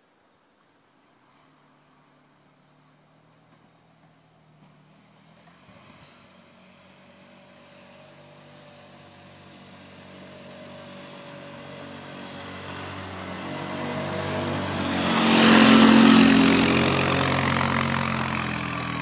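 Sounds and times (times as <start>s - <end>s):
atv engine running: 4.6s - 19.0s.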